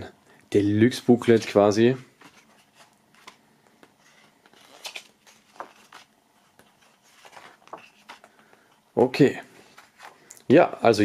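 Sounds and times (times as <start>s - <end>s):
paper pages rustling: 1.2s - 8.7s, 9.6s - 10.3s.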